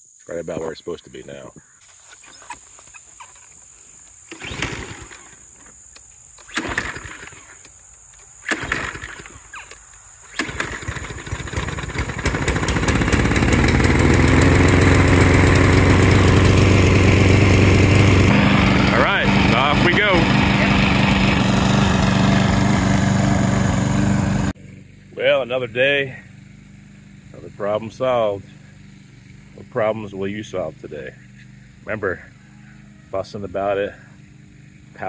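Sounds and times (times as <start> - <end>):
lawn mower pull-start: 2.0 - 3.6, 4.2 - 24.6
lawn mower engine running: 2.3 - 35.0.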